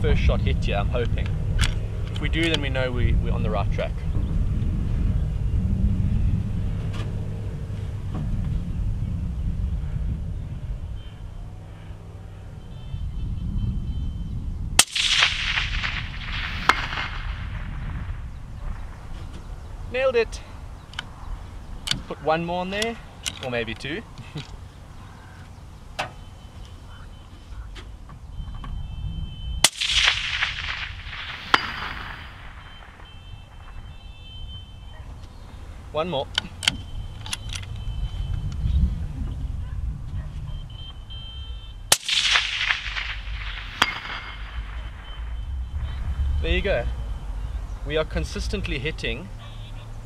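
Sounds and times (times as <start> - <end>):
distant bullet clanking on steel: 14.8 - 19.6, 29.6 - 34.0, 41.9 - 45.4
rifle shot with rolling echo: 14.8 - 20.6, 29.6 - 34.5, 41.9 - 50.0
distant steel gong hit: 42.0 - 46.2.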